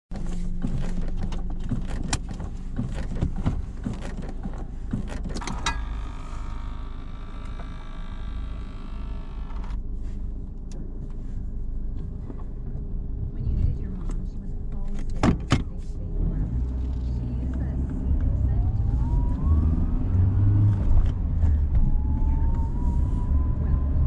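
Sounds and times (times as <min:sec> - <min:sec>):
sharp clicks and knocks: 0:00.1 - 0:06.0
low steady hum: 0:00.1 - 0:24.0
electric motor whine: 0:05.6 - 0:09.8.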